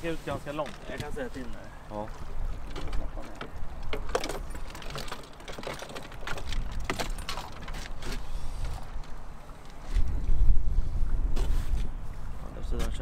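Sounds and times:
low rumble of wind and boat: 0.0s - 13.0s
fishing tackle clicking and clinking: 2.7s - 8.0s.

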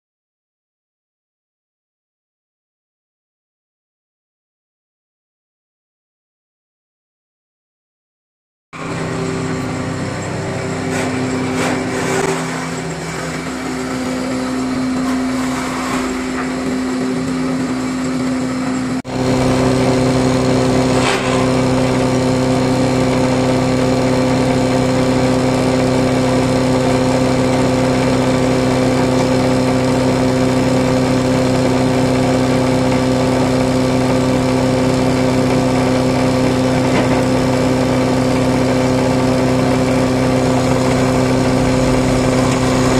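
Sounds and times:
mortising machine motor humming: 8.8s - 42.9s.

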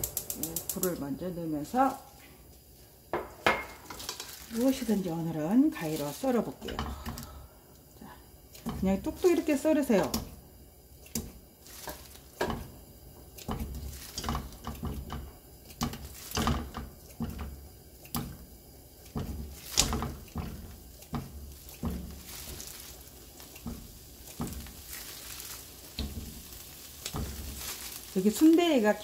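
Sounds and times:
chunks dropping into frying pan: 23.6s - 28.0s.

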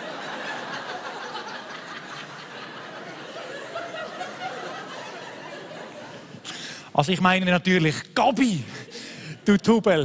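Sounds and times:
audience laughing: 0.0s - 6.5s.

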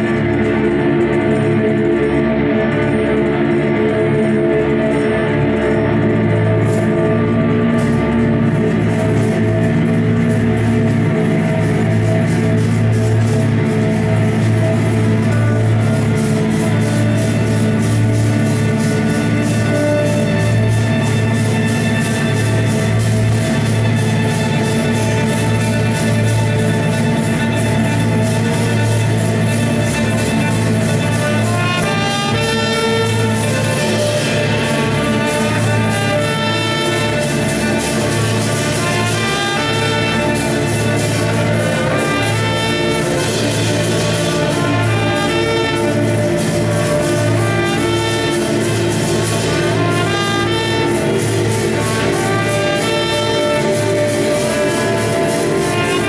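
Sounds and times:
violins playing: 0.0s - 56.0s
trumpet playing: 14.5s - 56.0s.

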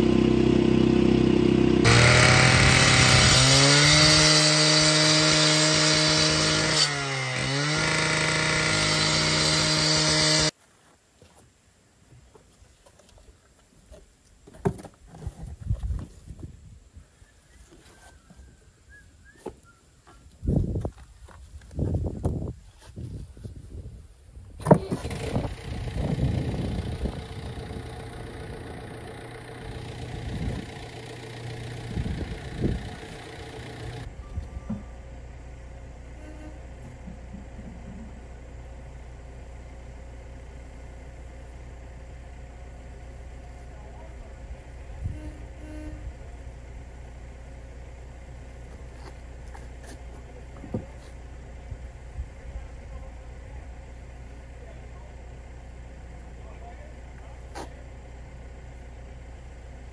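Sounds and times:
engine running: 0.0s - 10.5s, 24.6s - 59.9s.

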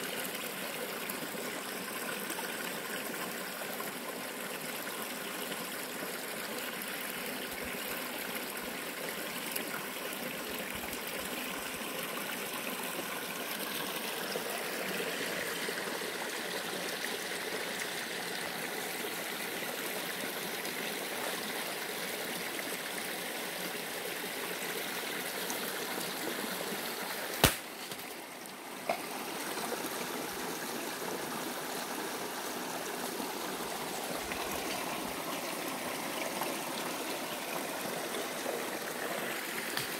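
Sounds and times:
stream flowing over stones: 0.0s - 39.9s.

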